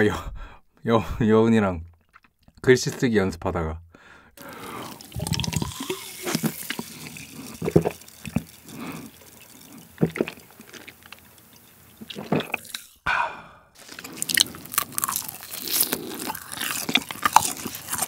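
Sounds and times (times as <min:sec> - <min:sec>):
wet mouth and lip clicks: 0:04.4 - 0:13.0, 0:14.0 - 0:18.0
gulping swallows: 0:04.4 - 0:13.1.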